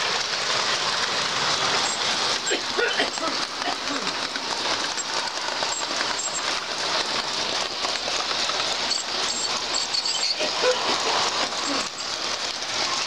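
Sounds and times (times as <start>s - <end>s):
model train running on track: 0.0s - 13.0s.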